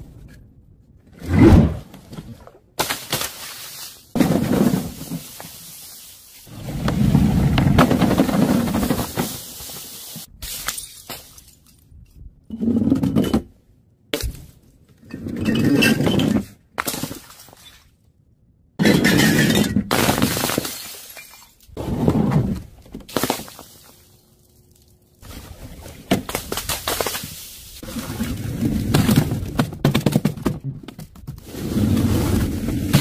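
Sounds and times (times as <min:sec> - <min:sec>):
bottles breaking on pavement: 0:10.4 - 0:11.7, 0:18.8 - 0:21.7, 0:23.0 - 0:24.1.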